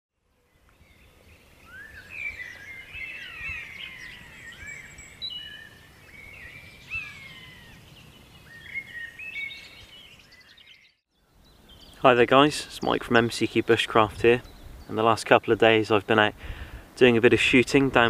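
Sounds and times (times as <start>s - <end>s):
songbirds singing and chirping: 0.2s - 18.0s
faint background hiss: 11.2s - 18.0s.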